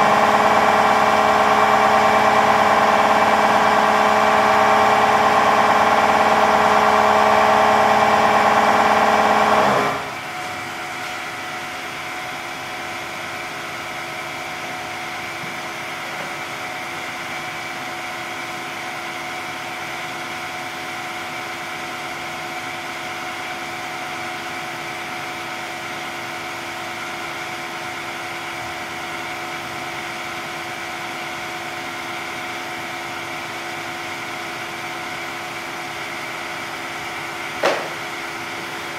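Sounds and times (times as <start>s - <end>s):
press machine humming: 0.0s - 10.2s.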